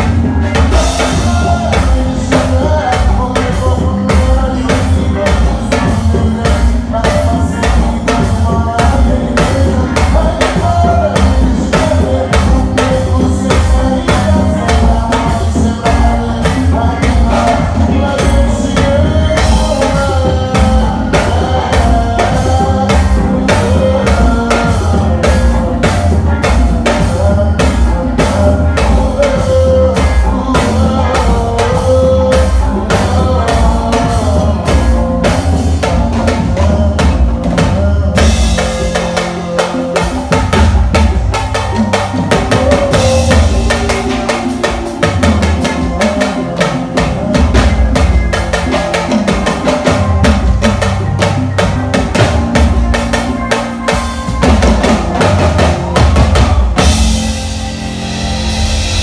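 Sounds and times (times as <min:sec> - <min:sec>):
bass: 0:00.0 - 0:59.0
drum kit: 0:00.0 - 0:59.0
hand percussion: 0:00.0 - 0:59.0
melody line: 0:38.2 - 0:59.0.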